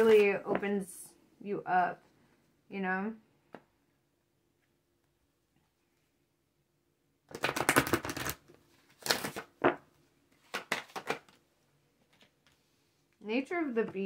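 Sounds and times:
cards riffling together: 7.3 - 8.4
card deck cascading: 7.3 - 9.8.

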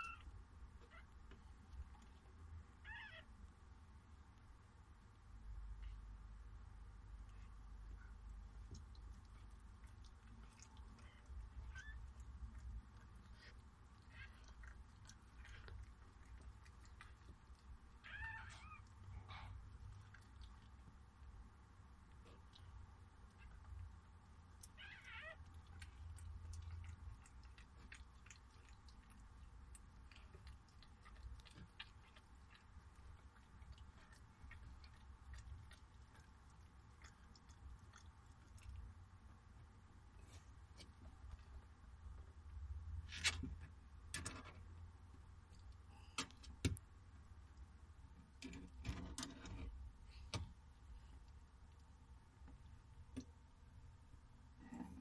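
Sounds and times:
puppy squealing: 0.0 - 0.3, 2.8 - 3.3, 18.0 - 19.5, 24.7 - 25.8
low steady hum: 0.0 - 55.0
dog licking with wet clicks: 8.4 - 18.1, 25.4 - 39.0.

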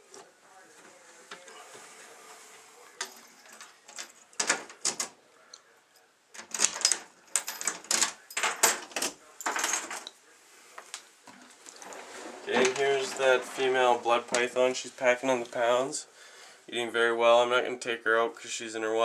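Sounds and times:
clattering clicks and knocks: 3.9 - 5.1, 6.4 - 10.1.

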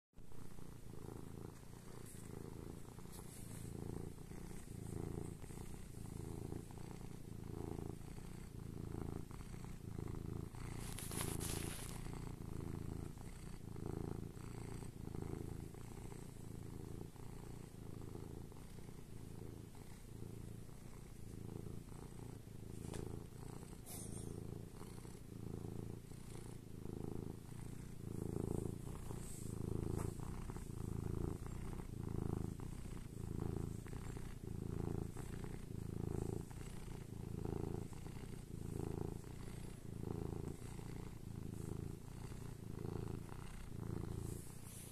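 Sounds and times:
cat purring: 0.2 - 44.9.

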